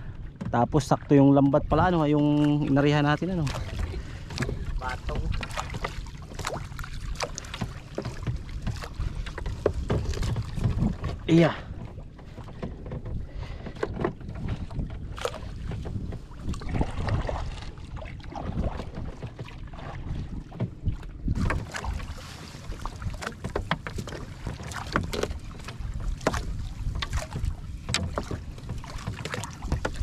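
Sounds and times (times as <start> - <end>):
water lapping: 0.0 - 30.0
wind rumble on microphone: 0.0 - 30.0
net knocking against hull: 1.8 - 30.0.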